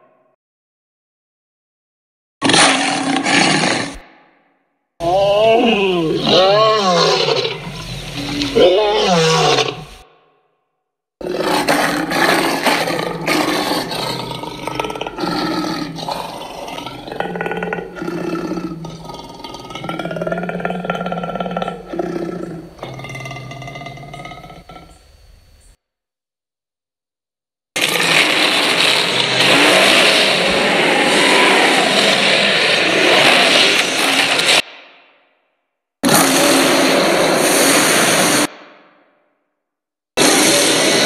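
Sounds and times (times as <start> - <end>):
monster roar: 2.4 - 4.1, 5.0 - 10.2, 11.2 - 25.0, 27.8 - 34.6, 36.0 - 38.5, 40.2 - 41.0.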